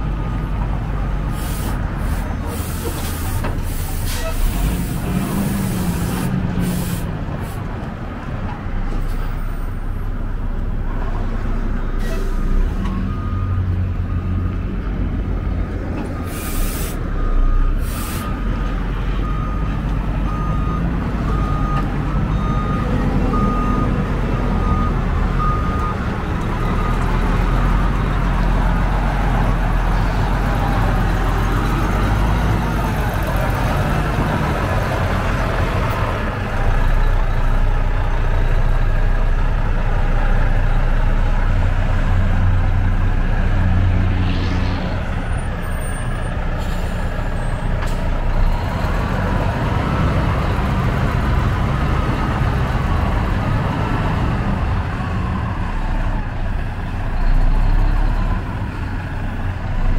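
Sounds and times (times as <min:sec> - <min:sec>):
diesel truck engine running: 0:00.0 - 0:59.9
air brake hiss: 0:01.3 - 0:07.6, 0:12.0 - 0:12.6, 0:16.2 - 0:17.0, 0:17.8 - 0:18.4, 0:45.7 - 0:48.0
reversing alarm beeping: 0:12.4 - 0:14.7, 0:19.2 - 0:27.8.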